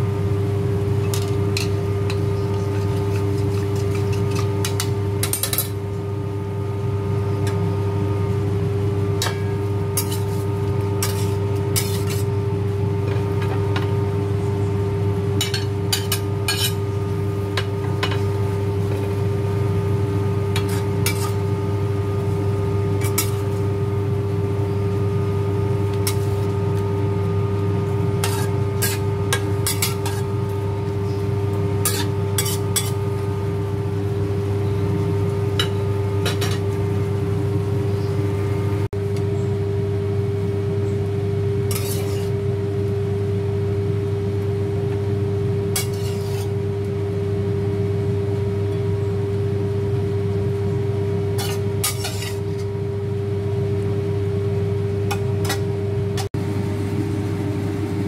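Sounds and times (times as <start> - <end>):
steady hum: 0.0 - 58.0
metal spatula scraping wok: 2.5 - 5.7, 10.0 - 12.3, 16.0 - 16.8, 20.6 - 21.5, 23.0 - 23.6, 26.0 - 26.6, 28.1 - 31.1, 31.8 - 33.1, 41.7 - 42.4, 45.8 - 46.6, 51.4 - 52.7.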